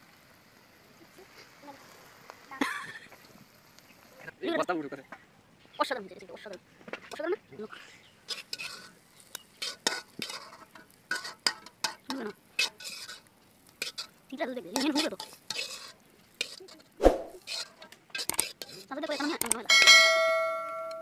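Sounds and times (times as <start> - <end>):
food frying in hot oil: 0.0 - 5.0, 7.1 - 19.7
spatula scraping metal wok: 7.7 - 20.0.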